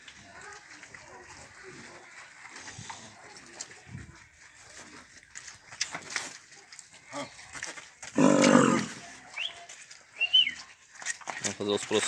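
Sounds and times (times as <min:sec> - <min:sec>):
cow mooing: 0:08.2 - 0:09.0.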